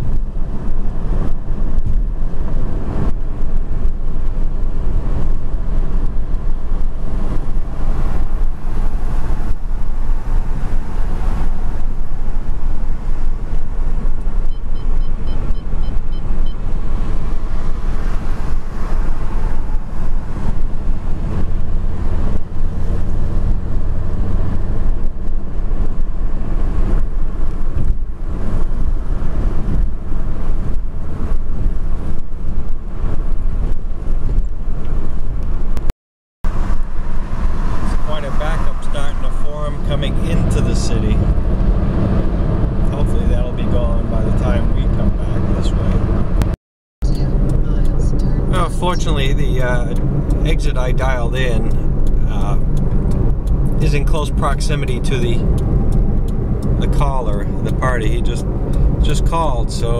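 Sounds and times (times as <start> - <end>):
car road and engine rumble: 0.0 - 59.9.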